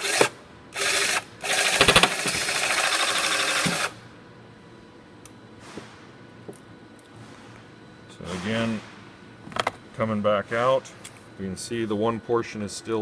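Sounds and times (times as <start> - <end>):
rivet tool motor running: 0.0 - 4.0.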